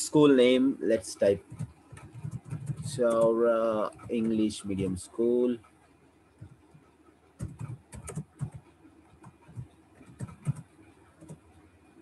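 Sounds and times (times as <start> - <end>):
computer keyboard keys clicking: 1.4 - 4.4, 7.4 - 11.4.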